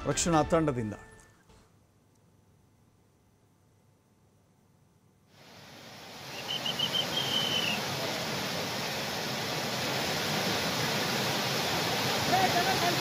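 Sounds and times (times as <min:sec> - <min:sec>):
floodwater rushing: 0:05.4 - 0:13.0.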